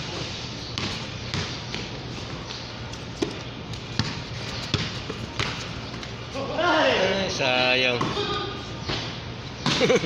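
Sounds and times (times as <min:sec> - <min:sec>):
basketball bouncing on court: 0:00.7 - 0:02.4, 0:03.1 - 0:06.2, 0:07.9 - 0:10.0.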